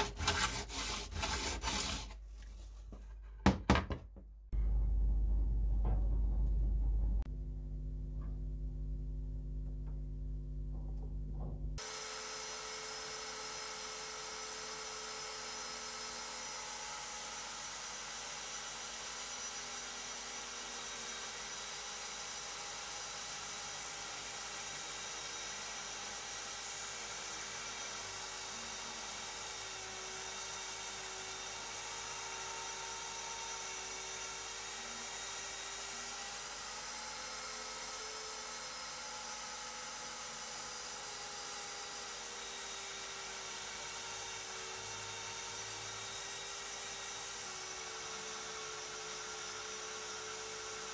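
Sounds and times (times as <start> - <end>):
low steady hum: 4.5 - 11.8.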